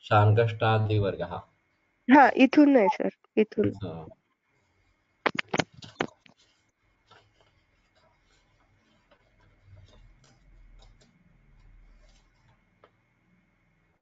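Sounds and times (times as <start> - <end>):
sharp clicks: 5.3 - 6.2.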